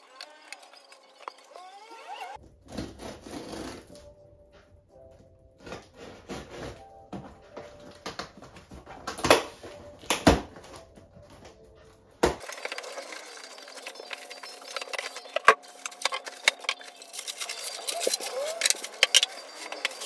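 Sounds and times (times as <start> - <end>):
foam and plastic wrap crackling: 5.6 - 20.0
cardboard box being opened: 12.5 - 20.0.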